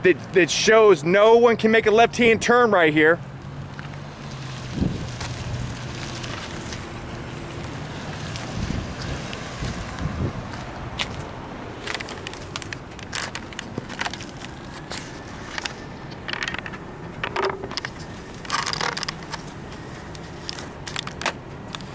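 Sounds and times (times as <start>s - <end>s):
street traffic: 0.0s - 21.9s
handling clicks and scrapes: 10.5s - 21.9s.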